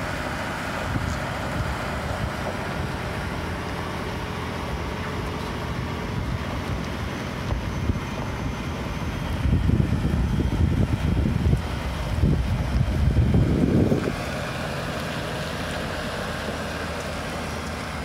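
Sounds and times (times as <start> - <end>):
truck rumbling on gravel: 0.0 - 18.0
wind buffeting microphone: 0.7 - 3.3, 5.5 - 14.4.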